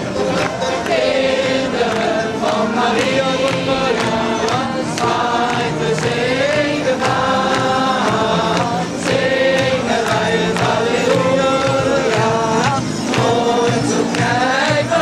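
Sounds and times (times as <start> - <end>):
instrumental accompaniment: 0.0 - 15.0.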